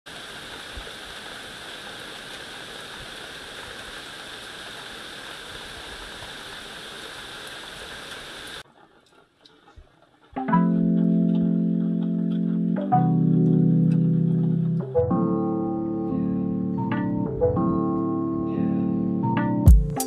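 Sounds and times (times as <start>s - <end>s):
steady rain falling: 0.1s - 8.6s
music with held chord: 10.4s - 20.0s.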